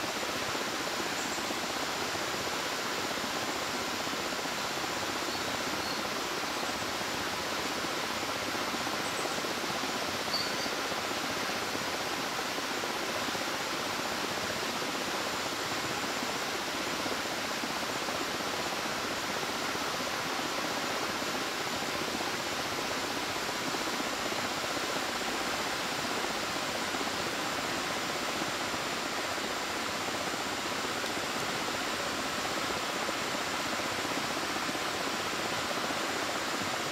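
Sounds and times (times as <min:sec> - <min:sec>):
river rapids rushing: 0:10.0 - 0:36.9.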